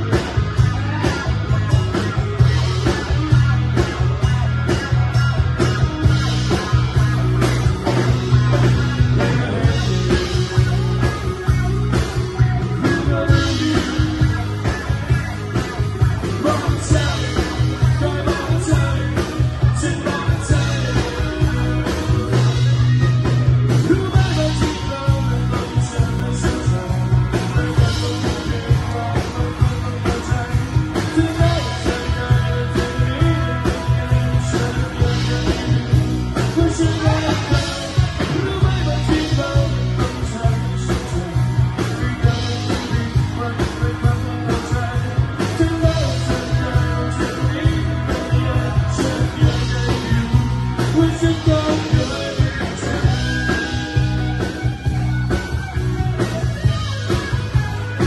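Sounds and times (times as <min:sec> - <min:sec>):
drum kit: 0:00.0 - 0:58.0
electric guitars: 0:00.0 - 0:58.0
person singing into microphone: 0:12.4 - 0:14.6, 0:16.3 - 0:22.6, 0:23.7 - 0:54.1.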